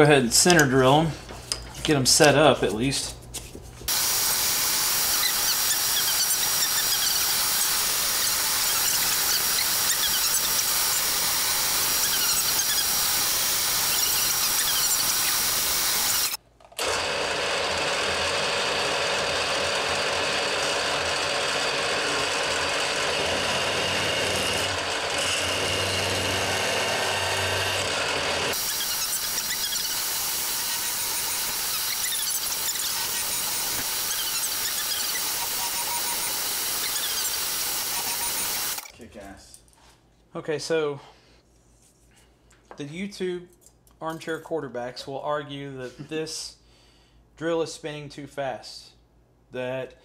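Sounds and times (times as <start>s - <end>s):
drill bit squealing through steel: 3.9s - 16.4s, 28.5s - 38.9s
machine humming: 3.9s - 38.9s.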